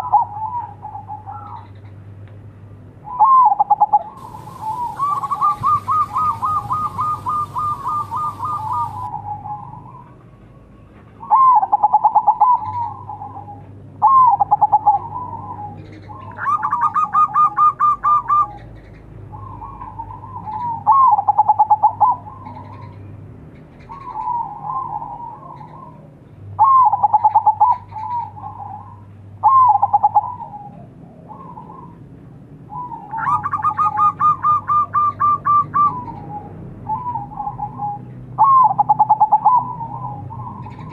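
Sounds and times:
dove cooing: 0.0 - 1.8, 3.0 - 10.2, 11.2 - 18.7, 19.3 - 23.0, 23.8 - 32.0, 32.7 - 40.9.

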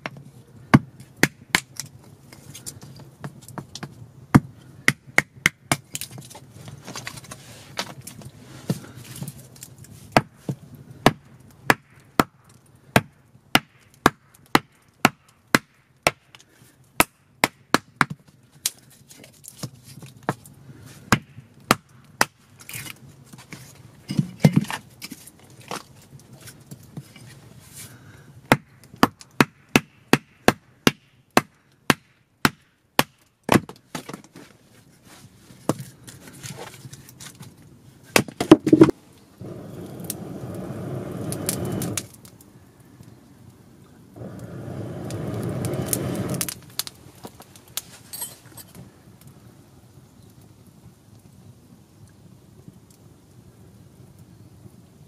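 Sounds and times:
axe chopping wood: 0.0 - 1.8, 4.3 - 6.0, 11.0 - 16.2, 28.5 - 34.1, 38.1 - 39.0.

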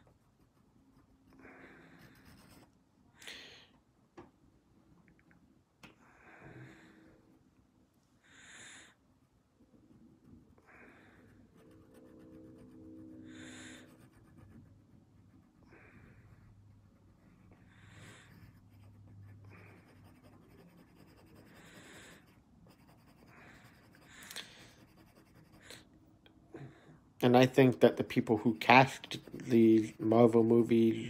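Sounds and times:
pencil scratching on paper: 0.0 - 2.8, 10.3 - 25.9, 27.7 - 30.9.

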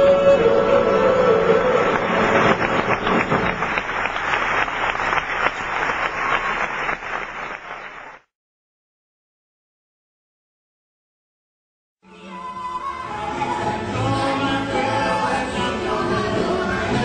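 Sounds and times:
audience applauding: 1.0 - 8.3.

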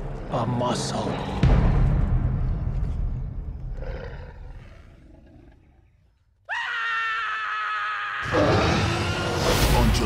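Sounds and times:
deep dinosaur roar: 3.7 - 6.0.

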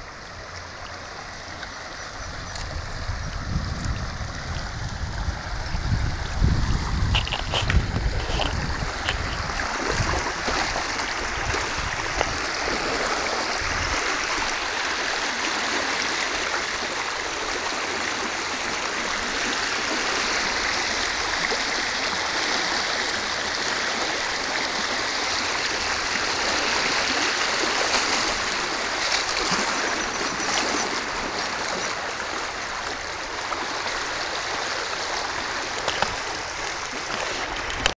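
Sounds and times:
floodwater rushing: 0.0 - 37.9.

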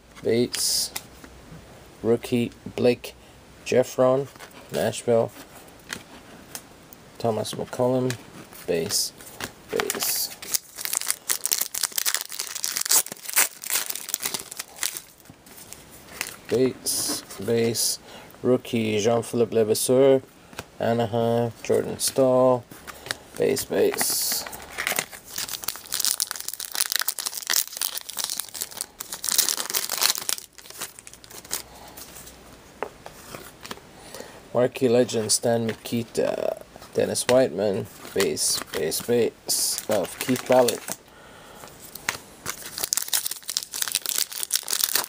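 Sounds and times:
foil card wrapper crinkling: 9.4 - 16.5, 23.8 - 32.0, 38.0 - 41.0, 41.9 - 45.0.

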